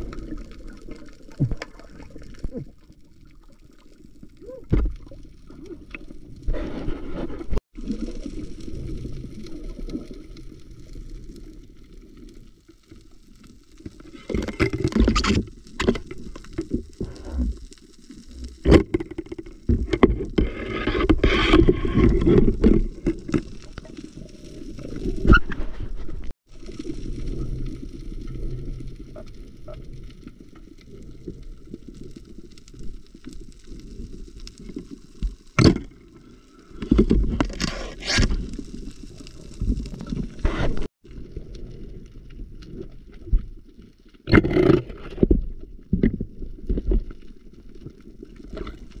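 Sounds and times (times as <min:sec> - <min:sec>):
muffled underwater water wash: 0:00.0 - 0:18.6, 0:21.7 - 0:44.2
knocks and scrapes underwater: 0:00.0 - 0:49.0
rushes of water: 0:00.0 - 0:49.0.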